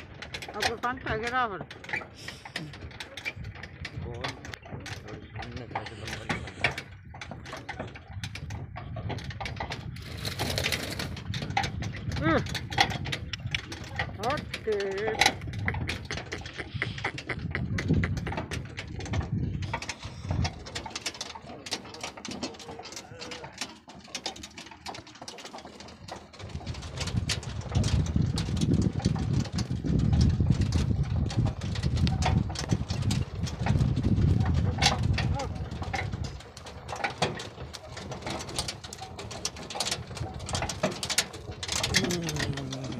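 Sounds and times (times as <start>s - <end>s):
cart rattling and clattering: 0.0s - 42.9s.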